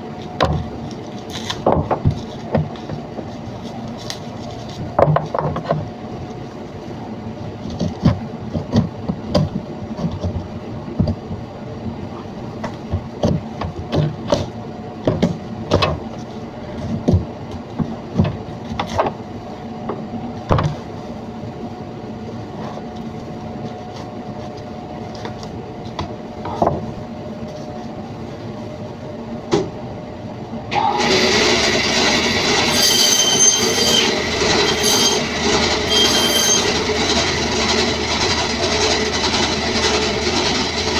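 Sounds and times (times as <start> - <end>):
meat band saw whining: 30.7 - 40.9.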